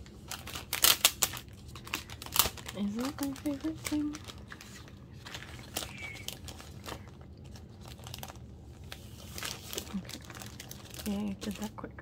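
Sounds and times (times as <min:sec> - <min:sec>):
plastic sleeve crinkling: 0:00.0 - 0:11.8.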